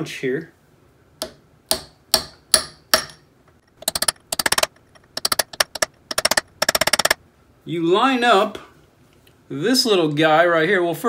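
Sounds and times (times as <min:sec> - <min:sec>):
hammer tapping steel punch: 0:01.2 - 0:07.2.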